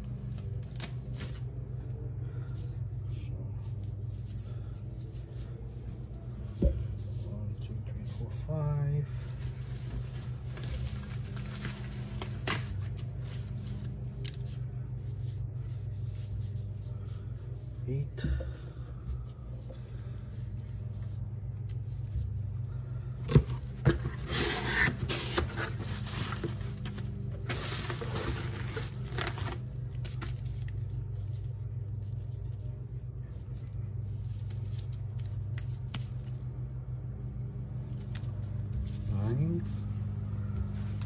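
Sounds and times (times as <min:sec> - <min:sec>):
steady low hum: 0:00.0 - 0:41.0
bubble wrap rustling and crinkling: 0:05.2 - 0:17.6, 0:24.0 - 0:36.4.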